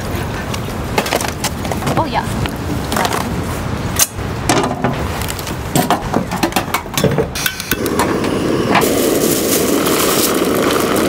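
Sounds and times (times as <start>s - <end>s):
coffee beans being ground: 8.8s - 11.0s.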